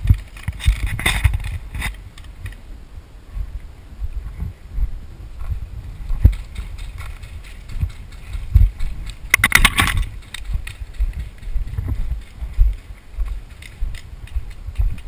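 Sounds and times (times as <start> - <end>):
footsteps on stony dirt: 0.0 - 2.6, 3.3 - 15.0
gear jostling against camera: 0.0 - 2.6, 5.4 - 15.0
sharp clicks: 6.2 - 11.5.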